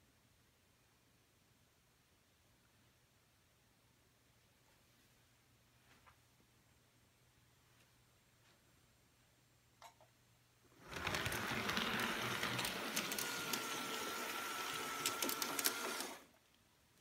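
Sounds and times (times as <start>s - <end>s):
wheels clicking on rails: 10.8s - 16.2s
model train motor whirring: 10.8s - 16.3s.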